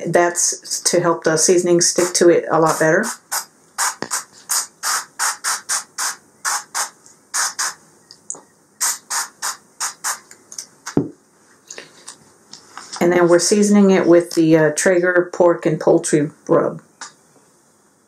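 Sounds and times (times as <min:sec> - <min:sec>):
oil spray hissing spritzes: 0:03.0 - 0:07.8, 0:08.8 - 0:10.3.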